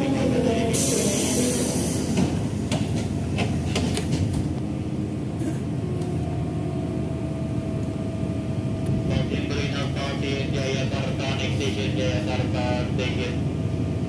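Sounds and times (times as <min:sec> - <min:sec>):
low hum of train car: 0:00.0 - 0:14.0
air hiss from train doors: 0:00.7 - 0:04.1
sharp clicks and knocks: 0:02.2 - 0:04.5.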